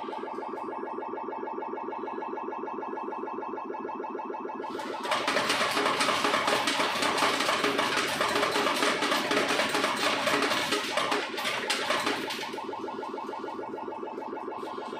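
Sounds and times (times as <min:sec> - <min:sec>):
slot machine electronic tune: 0:00.0 - 0:14.9
coins clattering into metal tray: 0:04.8 - 0:12.5.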